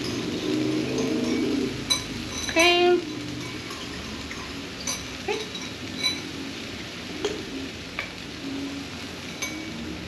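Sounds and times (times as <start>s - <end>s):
spoon clinking in ceramic bowl: 0.9s - 6.3s, 9.3s - 9.7s.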